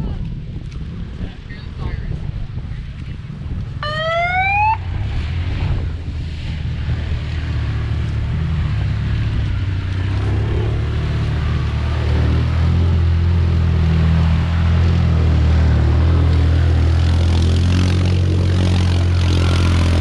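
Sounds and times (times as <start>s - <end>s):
wind on microphone: 0.0s - 20.0s
short rising tone: 3.8s - 4.9s.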